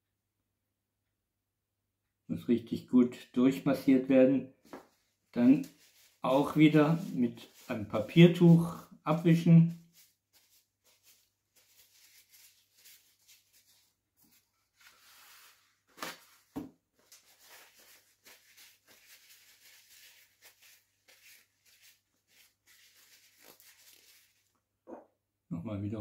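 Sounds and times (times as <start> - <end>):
paper towel crinkling: 4.6 - 24.5.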